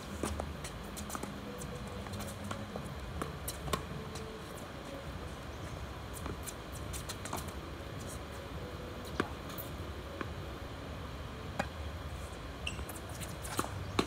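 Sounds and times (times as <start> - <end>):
outdoor background noise: 0.0 - 14.0.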